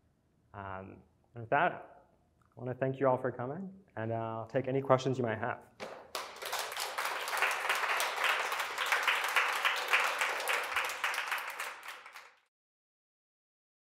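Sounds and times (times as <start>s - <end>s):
audience applauding: 5.8s - 12.5s.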